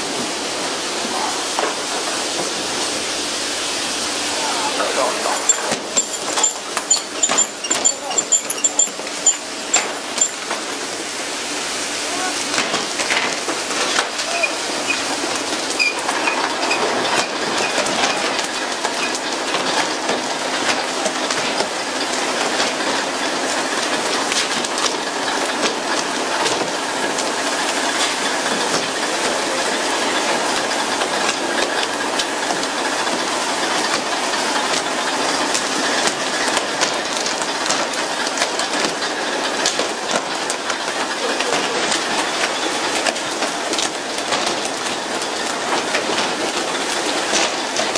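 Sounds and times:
sharp clicks and knocks: 5.3 - 10.8.

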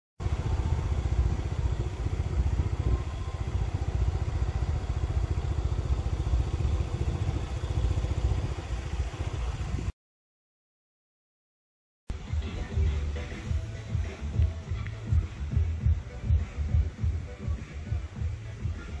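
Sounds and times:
motorcycle engine running: 0.2 - 9.9, 12.1 - 19.0
wind rumble on microphone: 0.2 - 9.9.

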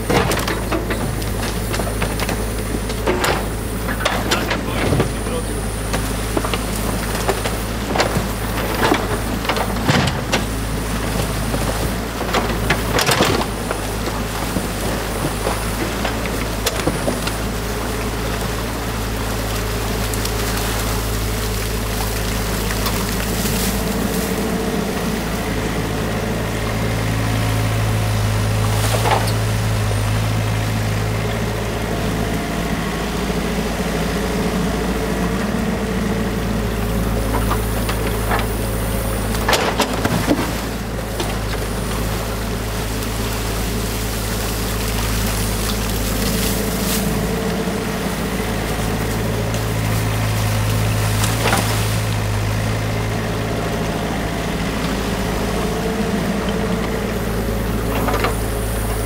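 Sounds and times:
excavator diesel engine running: 0.0 - 59.0
water rushing through culvert: 0.0 - 59.0.

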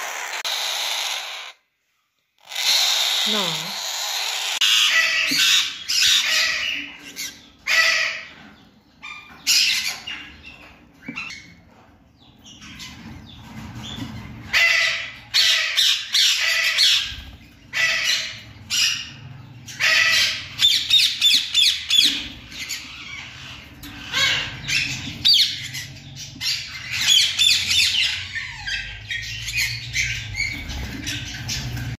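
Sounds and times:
parrot chicks begging squawks: 0.0 - 1.7, 2.4 - 11.6, 12.4 - 32.0.

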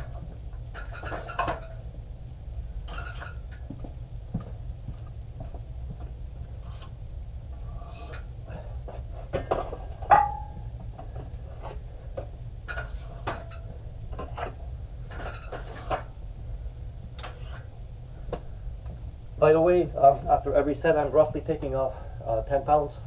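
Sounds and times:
weight plates knocking and scraping: 9.2 - 11.2
loud metallic clang: 10.1 - 10.6.

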